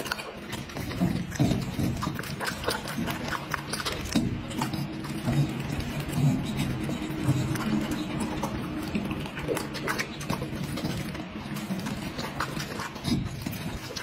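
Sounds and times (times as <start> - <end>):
dog chewing food wetly: 0.0 - 14.0
dog grunting low: 0.0 - 14.0.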